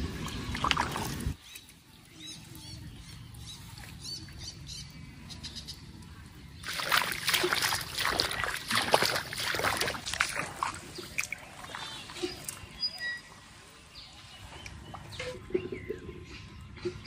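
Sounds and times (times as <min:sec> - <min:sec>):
water splashing and sloshing: 0:00.0 - 0:01.8, 0:06.5 - 0:17.0.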